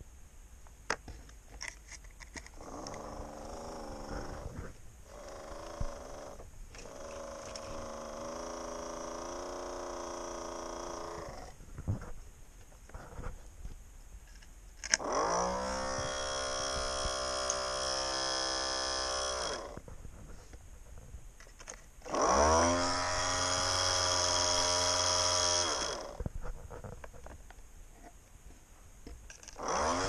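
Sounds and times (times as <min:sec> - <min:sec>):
electric hobby motor whining: 0:02.6 - 0:11.6, 0:15.0 - 0:20.0, 0:22.0 - 0:26.9, 0:29.4 - 0:30.0.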